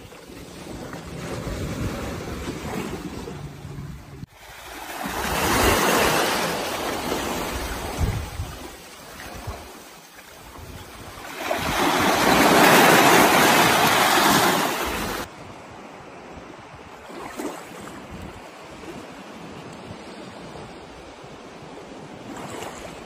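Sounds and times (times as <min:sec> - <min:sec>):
shallow water lapping: 0:00.0 - 0:15.3
surf rushing onto beach: 0:11.2 - 0:15.3.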